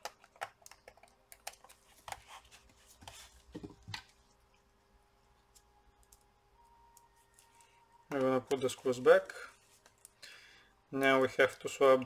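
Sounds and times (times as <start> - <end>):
laptop parts clicking and scraping: 0.0 - 4.2.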